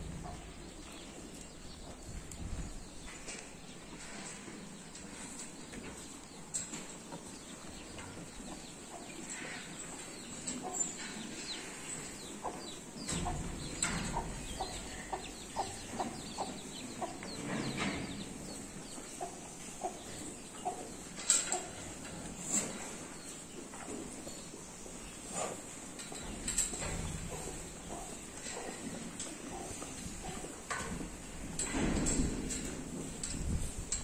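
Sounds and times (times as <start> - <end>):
hen clucking: 7.0 - 24.0.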